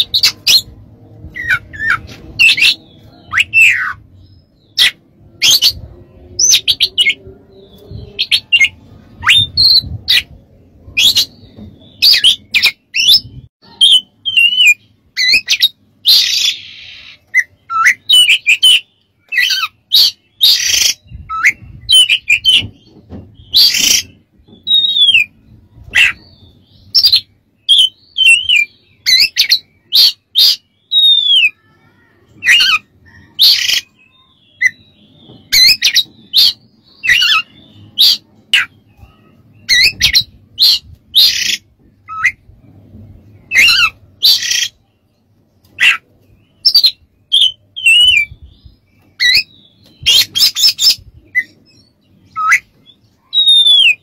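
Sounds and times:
bird singing whistled notes: 0:01.3 - 0:10.3, 0:10.9 - 0:22.7, 0:23.4 - 0:25.4, 0:26.0 - 0:31.6, 0:45.8 - 0:54.0.

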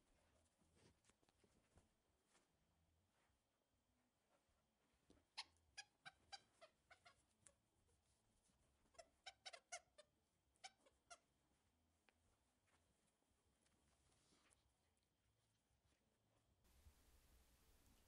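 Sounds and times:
dog toy squeaking: 0:08.9 - 0:10.0.

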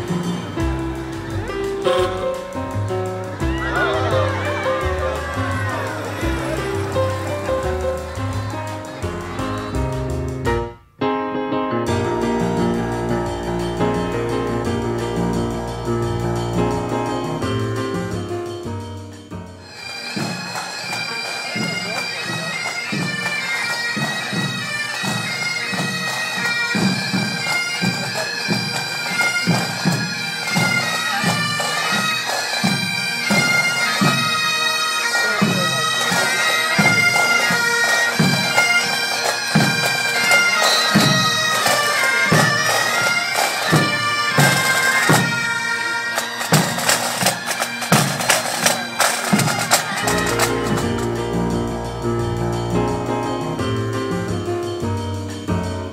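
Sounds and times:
bagpipes playing melody: 0:00.0 - 0:10.4, 0:19.6 - 0:53.7
bass and snare drums: 0:00.0 - 0:10.7, 0:46.4 - 0:55.3.

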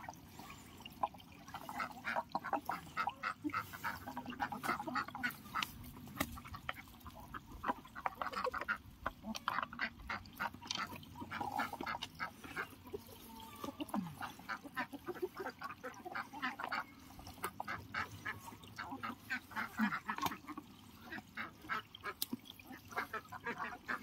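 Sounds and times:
chickens clucking: 0:00.0 - 0:24.0
ducks quacking: 0:01.5 - 0:24.0.

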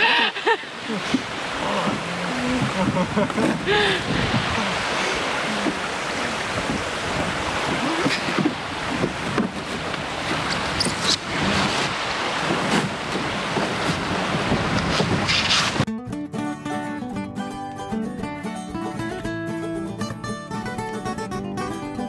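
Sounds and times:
water splashing around canoe: 0:00.0 - 0:15.9
wind buffeting microphone: 0:01.0 - 0:15.9.

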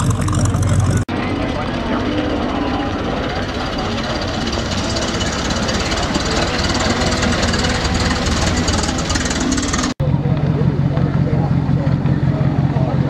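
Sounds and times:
hot rod engine passing by: 0:00.0 - 0:13.0.

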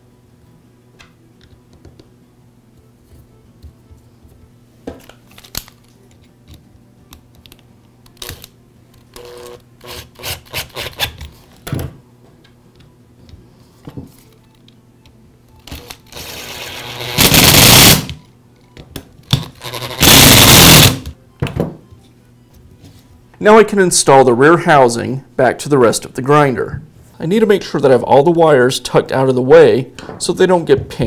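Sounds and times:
power drill bursts: 0:16.1 - 0:18.2, 0:19.6 - 0:21.1.

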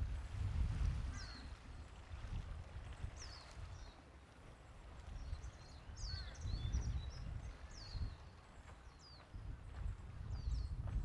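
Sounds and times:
small birds chirping: 0:02.9 - 0:11.0.

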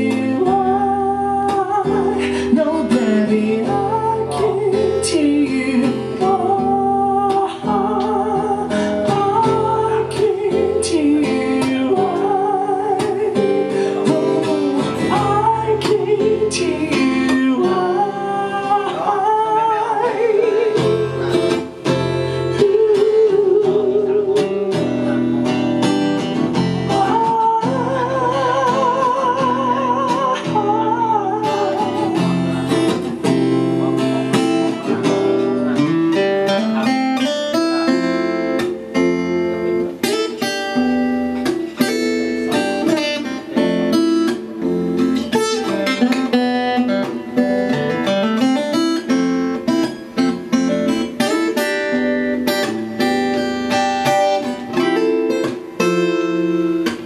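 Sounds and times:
man singing with vibrato: 0:00.0 - 0:25.6, 0:26.6 - 0:39.0
strummed acoustic guitar: 0:00.0 - 0:57.0.

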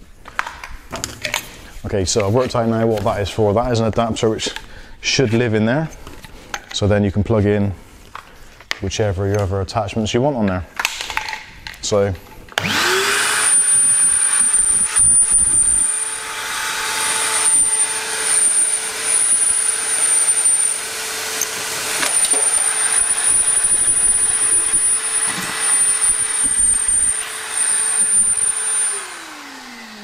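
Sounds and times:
shop vacuum motor whining: 0:12.5 - 0:30.0.

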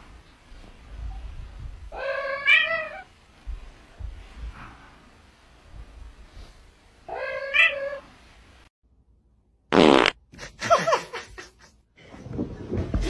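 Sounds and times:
cat meowing: 0:07.1 - 0:08.0
buzzing fart sound: 0:09.7 - 0:10.2.

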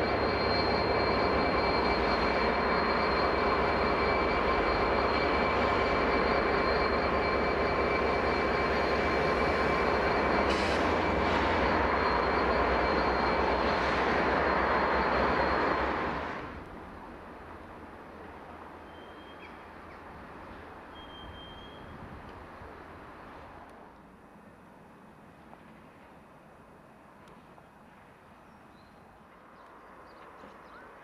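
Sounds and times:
high-pitched whistle: 0:00.0 - 0:15.9, 0:20.9 - 0:21.9
diesel locomotive engine running: 0:00.0 - 0:30.4.

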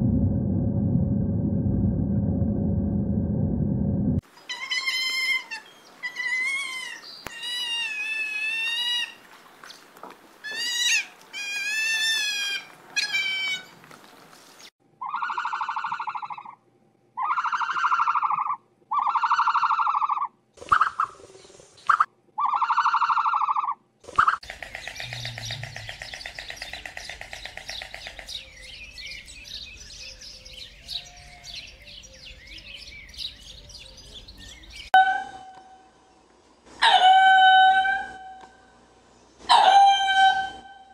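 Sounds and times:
high wavering animal cries: 0:04.5 - 0:09.2, 0:15.0 - 0:16.6, 0:17.2 - 0:20.3, 0:22.4 - 0:24.4, 0:39.5 - 0:40.9.

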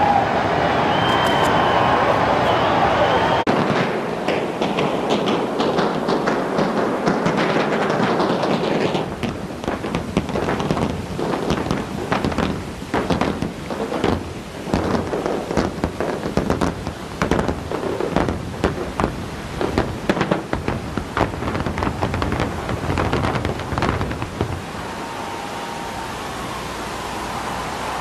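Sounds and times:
explosives cracking and banging: 0:03.4 - 0:24.7.

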